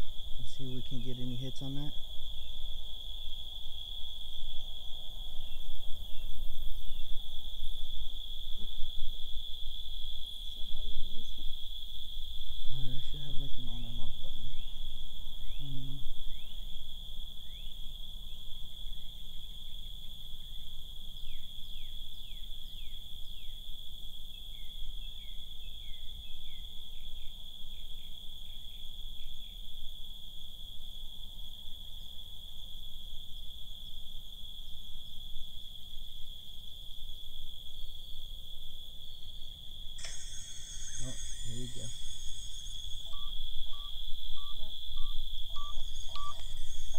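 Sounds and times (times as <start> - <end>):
crickets shrilling: 0.0 - 46.9
brief burst of noise: 40.0 - 43.3
short falling insect chirps: 40.0 - 44.7, 45.5 - 46.9.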